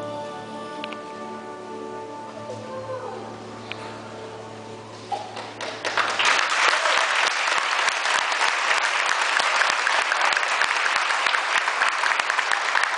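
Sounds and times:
audience applauding: 5.1s - 12.9s.

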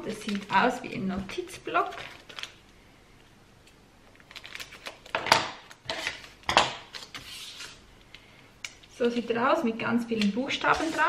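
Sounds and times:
packaging rustling and crinkling: 1.8s - 2.7s, 4.1s - 7.8s, 10.7s - 11.0s.

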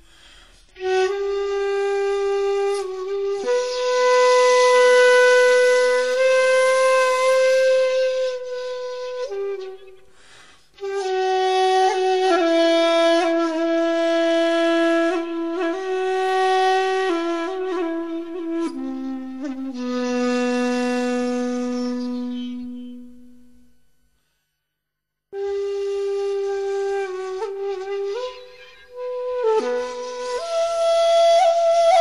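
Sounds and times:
flute playing slow notes: 0.0s - 23.8s, 25.4s - 32.0s.

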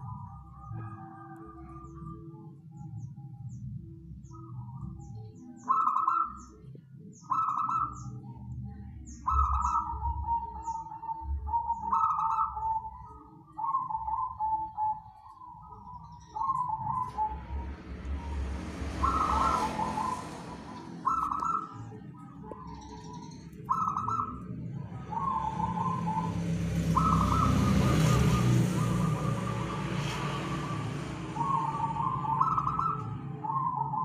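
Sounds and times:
dove trilled cooing: 0.0s - 34.0s
broad rushing background noise: 16.3s - 34.0s.

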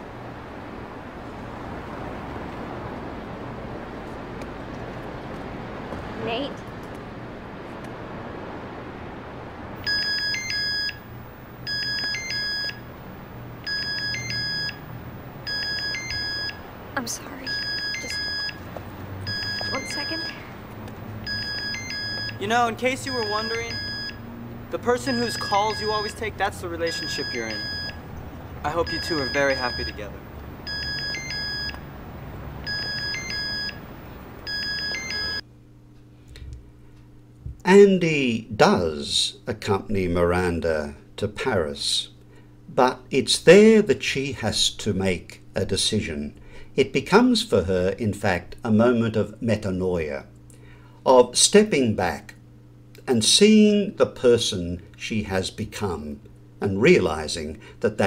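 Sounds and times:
low background hum: 0.0s - 58.0s
steady background noise: 0.0s - 58.0s
phone ringtone: 9.8s - 12.9s, 13.6s - 16.7s, 17.4s - 20.5s, 21.2s - 24.2s, 25.0s - 28.0s, 28.7s - 31.9s, 32.6s - 35.4s.

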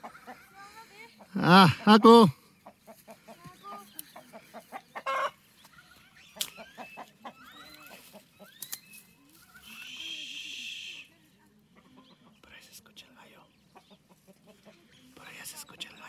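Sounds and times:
chickens clucking: 2.6s - 8.5s, 13.6s - 15.0s.

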